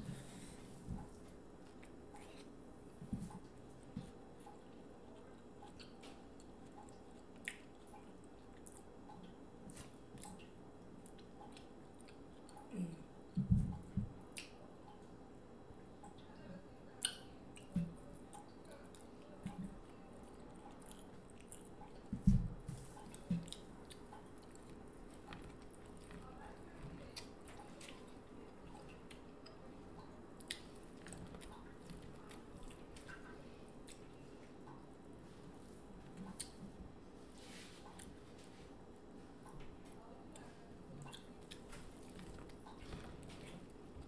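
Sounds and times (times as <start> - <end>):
wet chewing and squishing: 3.3 - 12.7, 17.0 - 34.9, 36.0 - 36.8, 41.0 - 44.0
corn cob bitten and chewed: 17.0 - 22.1, 23.0 - 34.2.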